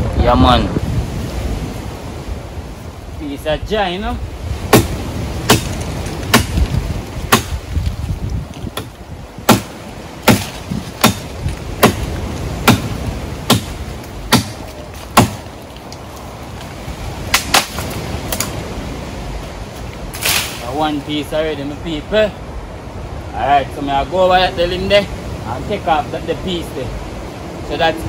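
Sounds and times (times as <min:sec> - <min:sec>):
blade chopping wood: 0:04.7 - 0:07.9, 0:08.5 - 0:15.5, 0:17.3 - 0:18.5.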